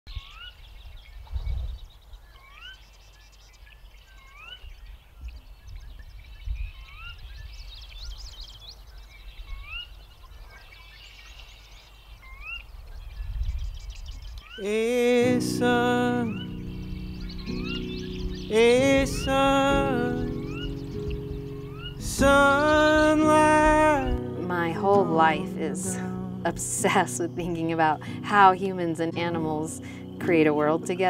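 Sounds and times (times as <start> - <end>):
loud drawn-out low calls: 14.6 - 27.0
music with sustained chords: 14.7 - 31.0
low wind rumble: 15.6 - 28.2.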